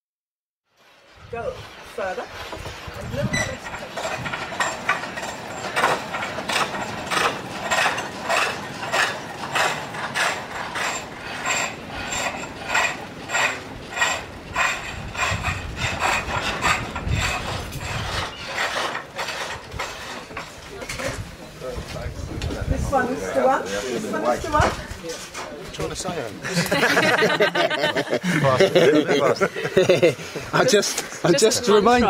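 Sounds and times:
blade scraping wood: 0:01.0 - 0:21.3.

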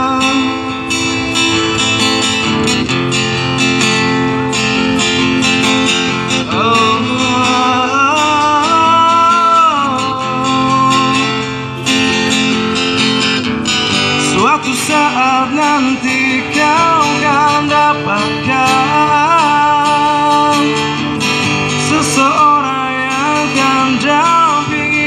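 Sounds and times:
man singing: 0:00.0 - 0:01.7, 0:06.2 - 0:12.4, 0:14.0 - 0:25.0
acoustic guitar strumming: 0:00.0 - 0:25.0.

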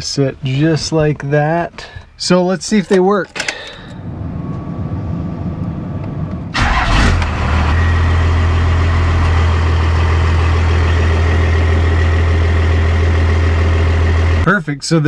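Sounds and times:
diesel engine starting and idling: 0:03.4 - 0:14.5.

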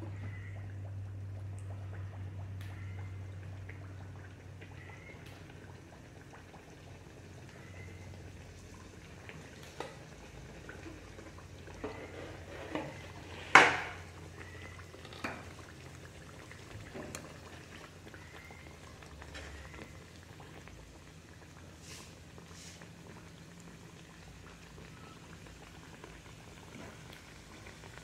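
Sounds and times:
bread deep-frying in hot oil: 0:00.0 - 0:28.0
oil popping: 0:08.5 - 0:28.0.

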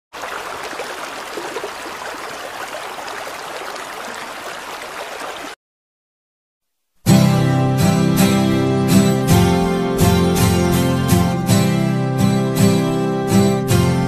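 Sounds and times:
water running and splashing: 0:00.1 - 0:05.6.

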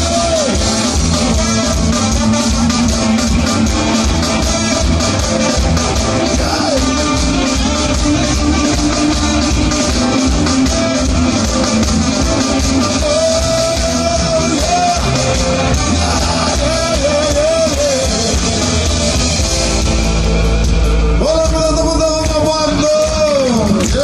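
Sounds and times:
horn section: 0:00.0 - 0:24.0
live ska band playing: 0:00.0 - 0:24.0
person singing: 0:06.2 - 0:09.6, 0:12.7 - 0:18.9.

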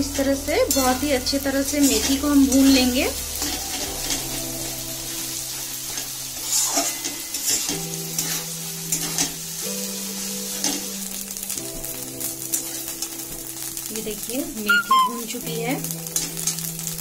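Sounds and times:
paste sizzling in ghee: 0:00.0 - 0:17.0
soft background music: 0:00.0 - 0:17.0.

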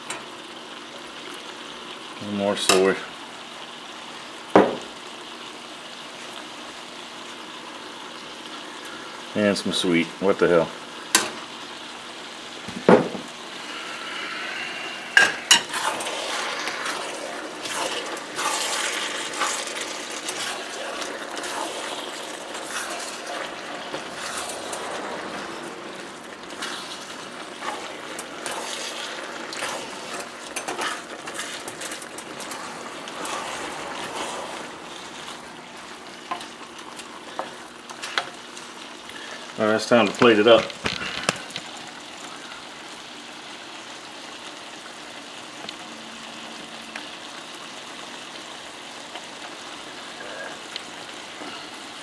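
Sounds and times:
stir-fry sizzling in a wok: 0:00.0 - 0:52.0
knock: 0:04.6 - 0:04.8, 0:12.8 - 0:13.3.

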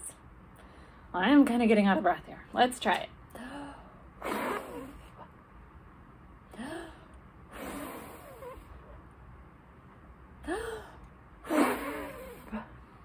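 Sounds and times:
woman blowing breathy puffs: 0:04.2 - 0:05.2, 0:07.5 - 0:08.8, 0:11.4 - 0:12.6.

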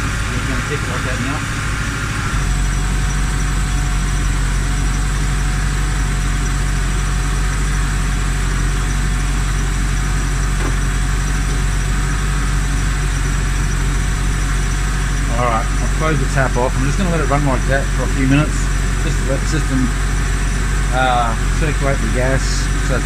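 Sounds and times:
van engine idling: 0:00.0 - 0:23.0.

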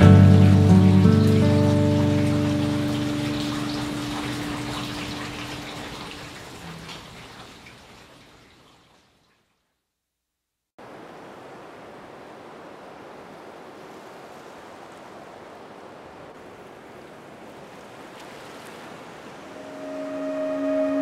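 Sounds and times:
ocean surf: 0:00.0 - 0:06.9, 0:10.8 - 0:21.0.

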